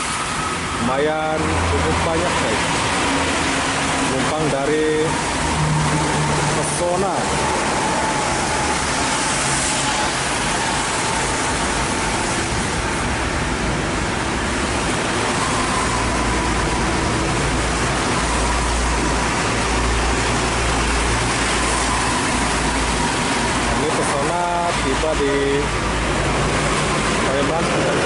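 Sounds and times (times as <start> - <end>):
heavy rain: 0.0 - 28.0
tyres on wet road: 0.0 - 28.0.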